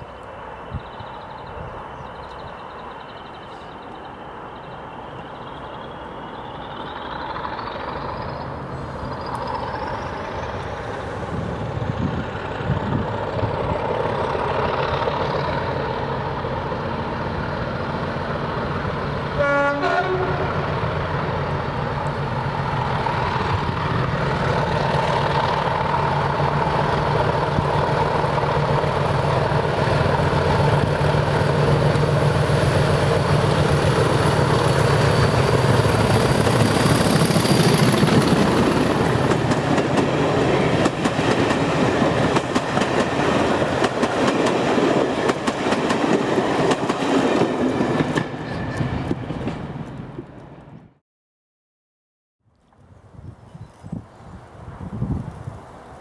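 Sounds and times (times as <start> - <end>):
diesel locomotive engine: 0.0 - 51.0
train horn blast: 19.3 - 20.7.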